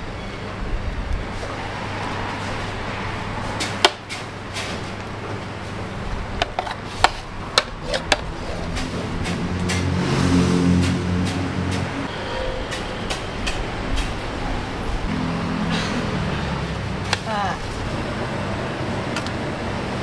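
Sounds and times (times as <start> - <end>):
vehicle engine approaching: 7.8 - 12.3, 14.8 - 20.0.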